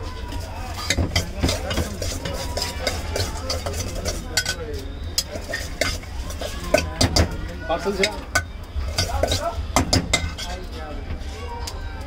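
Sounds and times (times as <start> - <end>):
metal scoop scraping a bowl: 0.7 - 7.3, 7.9 - 10.7.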